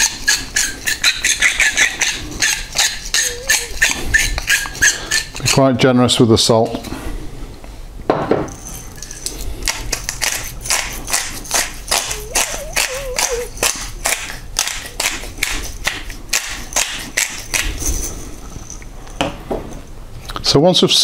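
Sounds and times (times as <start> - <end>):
pepper mill grinding: 0.0 - 5.8, 8.5 - 18.9.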